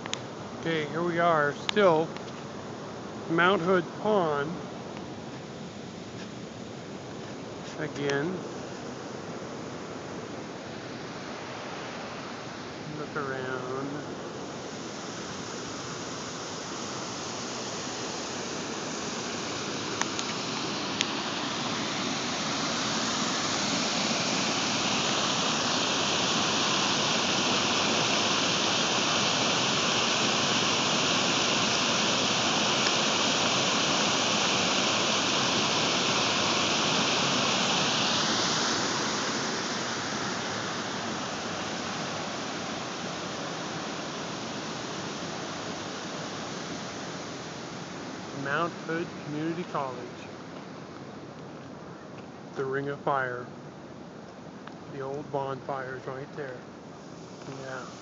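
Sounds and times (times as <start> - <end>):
water rushing over weir: 11.3 - 49.9.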